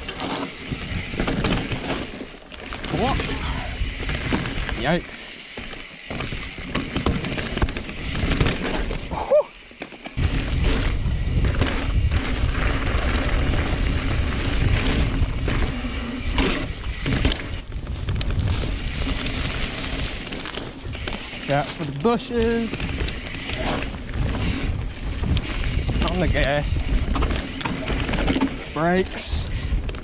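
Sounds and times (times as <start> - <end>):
bike knocks and rattles: 0.0 - 30.0
bike tyres rolling over dirt: 0.0 - 30.0
wind rumble on microphone: 10.2 - 21.2, 22.5 - 28.6, 29.3 - 30.0.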